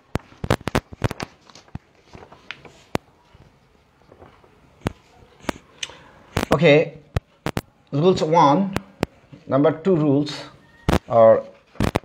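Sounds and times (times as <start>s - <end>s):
sharp irregular clicks and taps: 7.1s - 7.7s.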